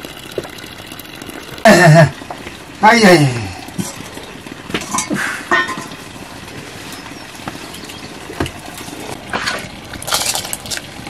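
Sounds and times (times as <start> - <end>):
wood fire hissing: 1.7 - 11.0.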